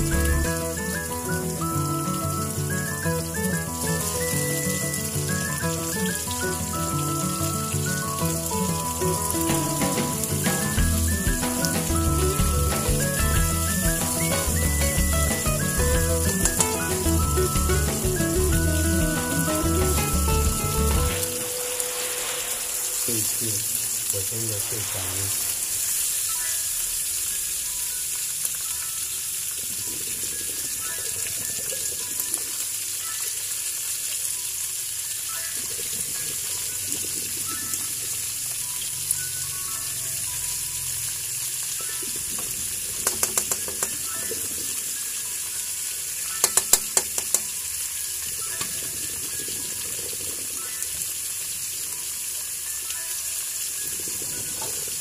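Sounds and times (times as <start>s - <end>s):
fish sizzling in hot oil: 0.0s - 55.0s.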